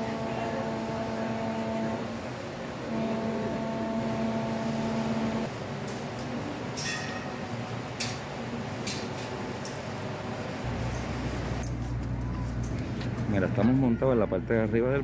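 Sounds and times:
ferryboat horn blasts: 0:00.0 - 0:02.2, 0:02.8 - 0:05.5.

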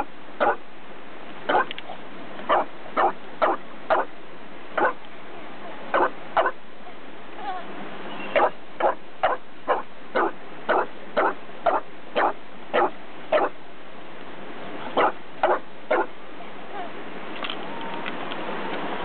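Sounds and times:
dog barking: 0:00.0 - 0:00.6, 0:01.5 - 0:01.7, 0:02.5 - 0:04.1, 0:04.8 - 0:05.0, 0:05.9 - 0:06.6, 0:08.4 - 0:13.6, 0:15.0 - 0:16.1.

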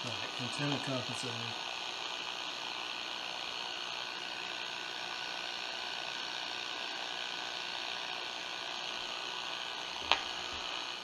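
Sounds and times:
radio static hiss: 0:00.0 - 0:01.6.

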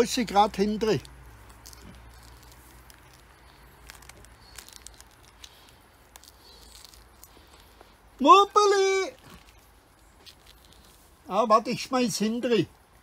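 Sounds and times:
rind tearing and clicking: 0:00.1 - 0:08.0, 0:09.1 - 0:11.0.

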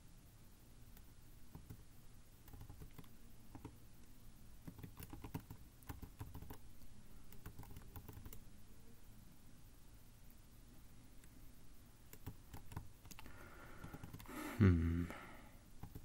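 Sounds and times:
keyboard keys tapping: 0:01.0 - 0:01.8, 0:02.4 - 0:03.8, 0:04.6 - 0:06.6, 0:07.3 - 0:08.4, 0:12.1 - 0:14.3, 0:15.8 - 0:16.0.

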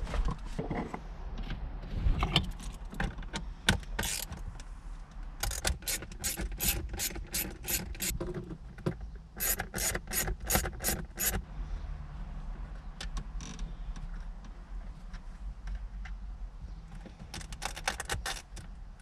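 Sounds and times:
ratchet pawl clicking: 0:05.4 - 0:08.2, 0:09.4 - 0:11.4.

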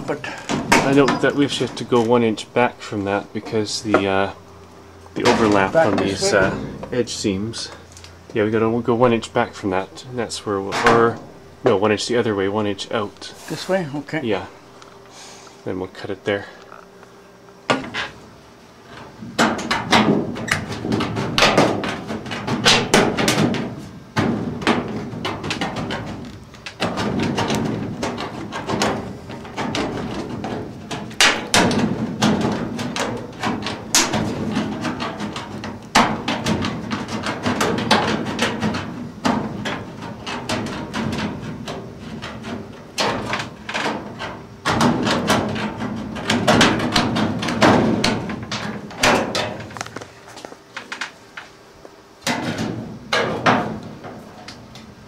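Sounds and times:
sheet metal rattling and clanking: 0:19.2 - 0:50.0.

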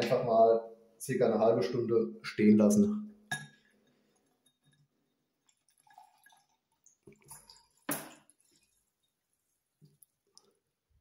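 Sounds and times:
liquid trickling into glass: 0:04.2 - 0:09.2.

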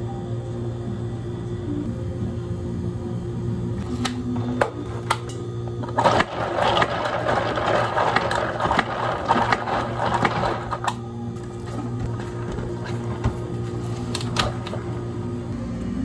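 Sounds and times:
ice clicking: 0:06.0 - 0:11.0
ice cubes clinking in plastic cup: 0:06.0 - 0:11.0.

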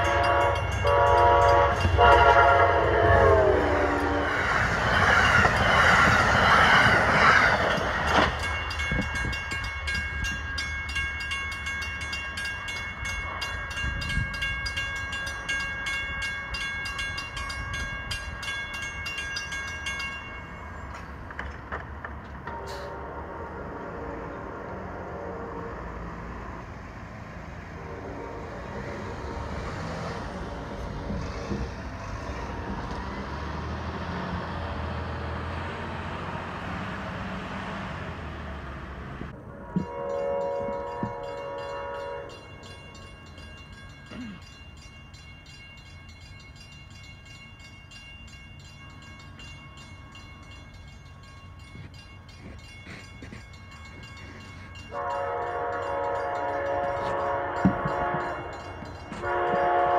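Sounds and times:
train horn blast: 0:00.0 - 0:04.4, 0:22.5 - 0:26.4, 0:27.7 - 0:30.0, 0:39.5 - 0:42.6, 0:54.9 - 0:59.9.

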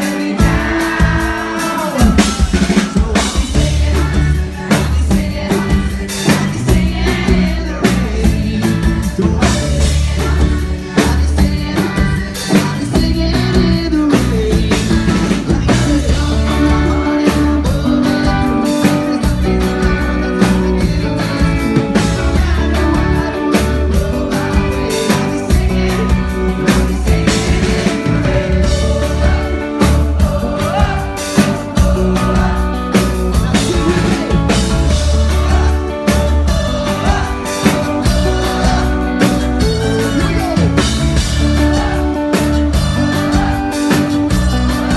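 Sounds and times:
bass guitar: 0:00.0 - 0:44.9
drum kit: 0:00.0 - 0:44.9
electric guitar: 0:00.0 - 0:44.9
person singing: 0:00.0 - 0:44.9.

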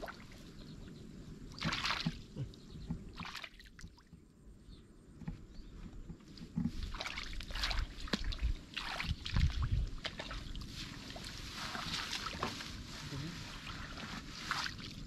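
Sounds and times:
water sloshing and splashing: 0:01.5 - 0:04.2, 0:06.3 - 0:15.0.

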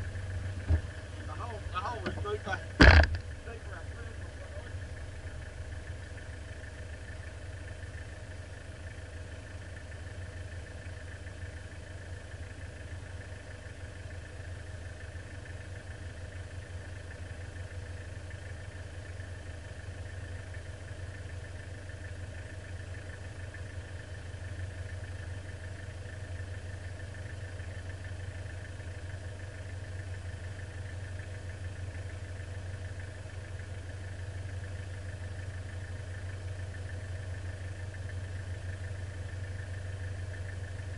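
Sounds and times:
engine idling: 0:00.0 - 0:40.9
faint steady whine: 0:00.0 - 0:40.9.

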